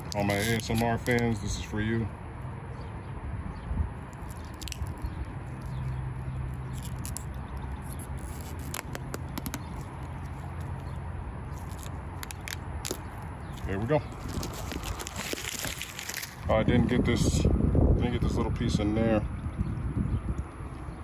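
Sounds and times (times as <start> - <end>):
rubber coating peeling: 0.0 - 1.4, 4.0 - 16.4.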